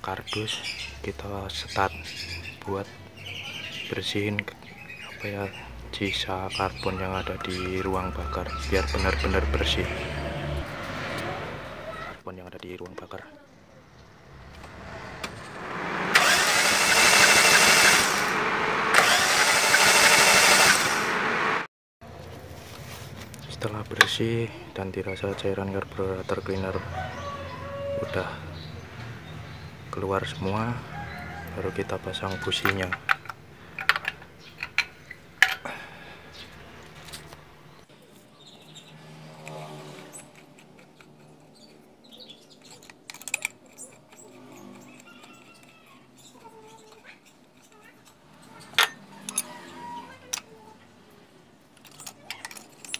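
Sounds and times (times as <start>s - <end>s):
starter motor cranking engine: 14.2s - 21.7s
metal spark plugs clinking: 32.6s - 35.7s, 46.9s - 49.6s, 51.8s - 52.9s.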